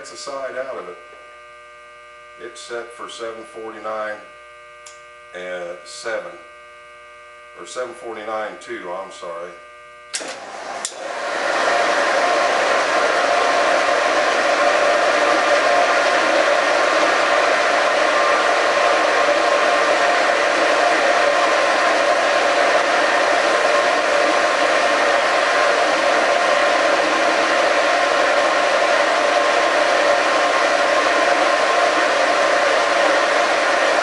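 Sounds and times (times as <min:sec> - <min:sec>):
boring mill humming: 0:09.5 - 0:34.0.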